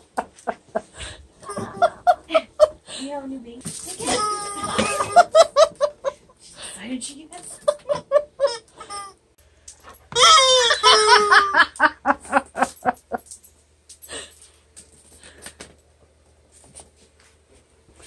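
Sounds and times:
person laughing: 0.2s - 2.9s, 4.0s - 6.3s, 7.5s - 8.9s, 10.5s - 13.2s
squeaky toy squawking: 4.0s - 5.3s, 8.4s - 9.2s, 10.1s - 11.5s.

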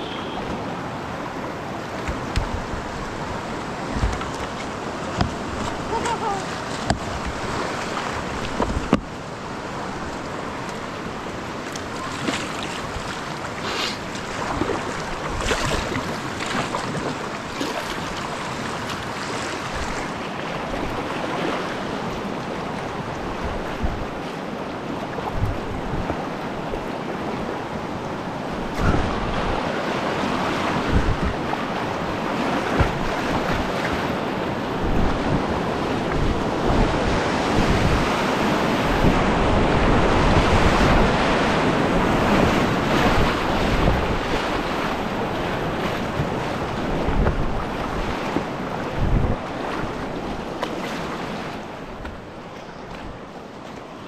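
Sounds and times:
paddle strokes splashing: 0.0s - 23.1s, 28.6s - 36.3s, 40.6s - 54.0s
creek current rushing: 0.0s - 23.5s
wind buffeting the microphone: 0.5s - 24.3s, 25.1s - 53.4s.

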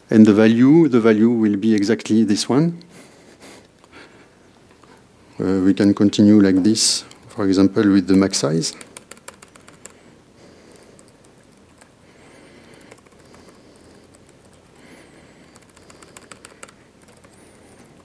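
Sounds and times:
room hiss: 0.0s - 18.0s
laptop keyboard typing: 7.1s - 18.0s.

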